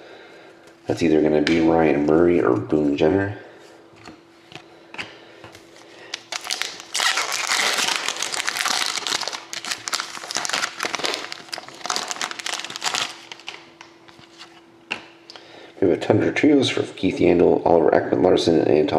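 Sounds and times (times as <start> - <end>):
foil wrapper crinkling: 6.1 - 14.5.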